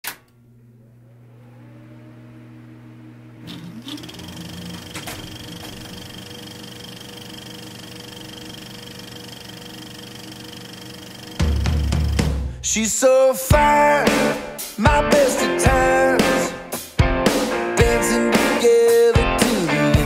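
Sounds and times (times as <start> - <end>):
projector clicks: 0.0 - 0.4, 3.5 - 8.7
film projector motor whirring: 1.0 - 12.3.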